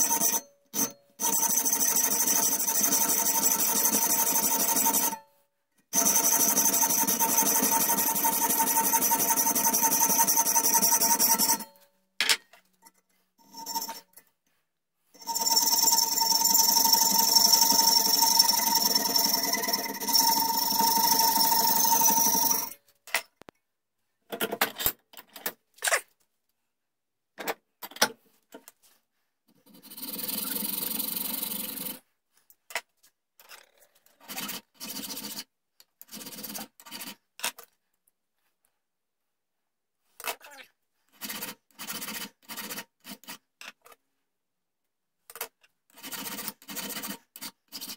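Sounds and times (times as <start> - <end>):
hacksaw cutting metal: 0.0 - 5.2, 6.0 - 11.7
scrapes and clicks of handling tools: 11.4 - 14.8, 22.2 - 26.3, 27.4 - 29.9, 32.3 - 38.7, 41.1 - 44.1, 45.3 - 47.9.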